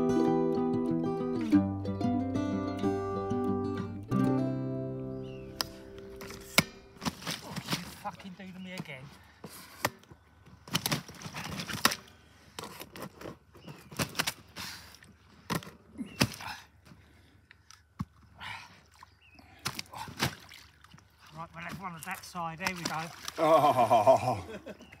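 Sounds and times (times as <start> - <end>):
wet sling knocks and rustles: 5.6 - 9.0, 9.8 - 14.6.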